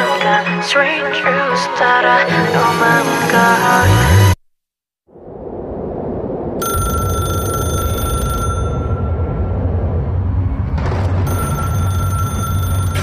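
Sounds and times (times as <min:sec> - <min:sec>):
steady low rumble: 0:05.1 - 0:12.3
telephone ringing: 0:06.6 - 0:09.1, 0:11.2 - 0:13.0.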